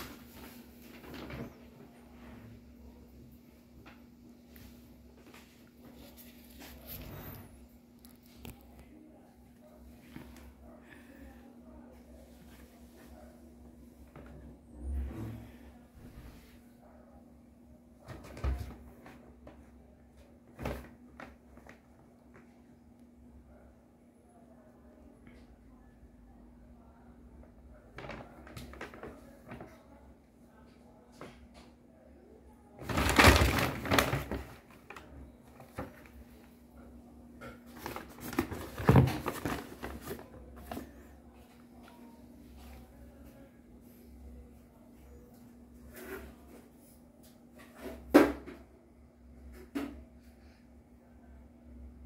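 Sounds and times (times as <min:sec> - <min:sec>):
paper bag crinkling: 0:32.8 - 0:35.1
paper bag rustling and crinkling: 0:32.8 - 0:36.4, 0:37.6 - 0:41.0.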